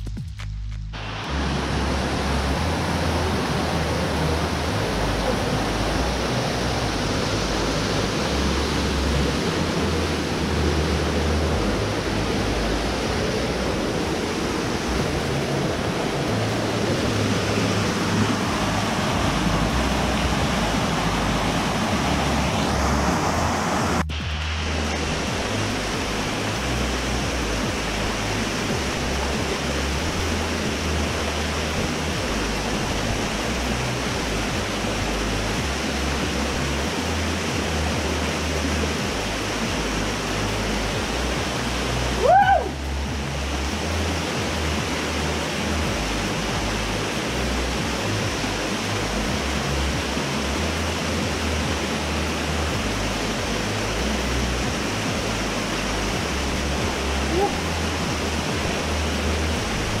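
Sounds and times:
waterfall pouring into pool: 1.0s - 60.0s
high-pitched cry: 42.2s - 42.8s, 57.3s - 57.7s.

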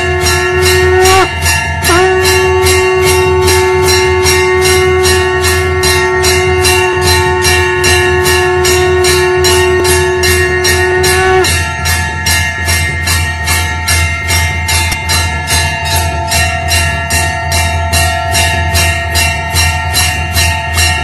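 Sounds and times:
conch shell blown: 0.0s - 12.0s
temple bells rung rapidly: 0.0s - 21.0s.

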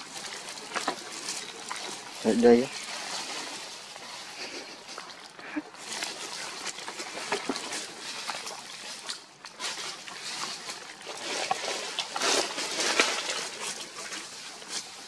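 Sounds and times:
steady hiss: 0.0s - 9.0s
dry leaves rustling and crackling: 0.0s - 15.0s.

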